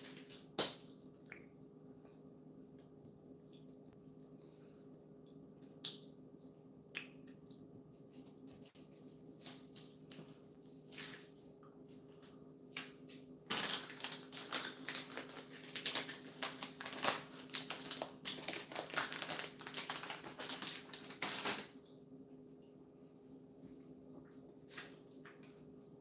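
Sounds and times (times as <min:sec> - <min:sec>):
foil bag crinkling: 0:13.5 - 0:21.7.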